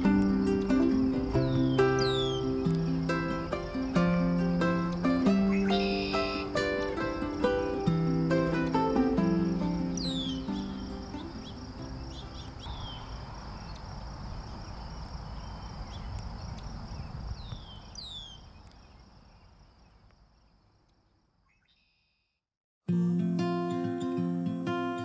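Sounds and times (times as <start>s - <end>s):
insect trilling: 0.0s - 20.0s
birds chirping: 0.0s - 22.1s.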